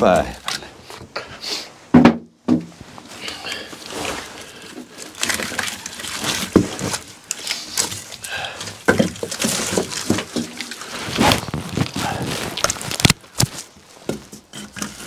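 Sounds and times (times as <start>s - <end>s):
wood scraping: 0.0s - 15.0s
firewood logs knocking: 1.9s - 2.7s, 6.4s - 7.0s, 7.8s - 10.8s, 12.0s - 15.0s.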